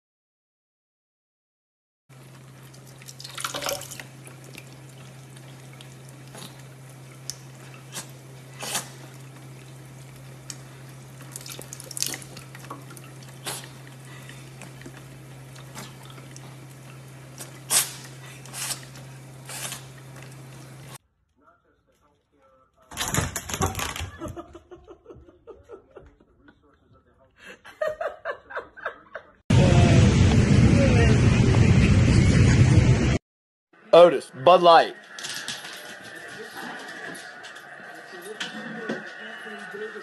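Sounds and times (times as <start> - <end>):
cat drinking from water stream: 2.2 - 21.0
faucet running into sink: 2.3 - 18.2
low hum: 29.5 - 33.2.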